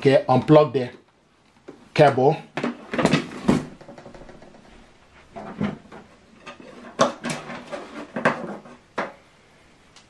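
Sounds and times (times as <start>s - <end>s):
cables knocking and clicking: 2.6s - 4.7s.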